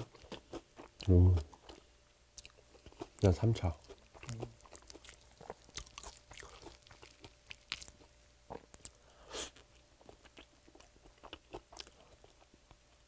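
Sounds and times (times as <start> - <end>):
chewing fried chicken: 0.0 - 13.0.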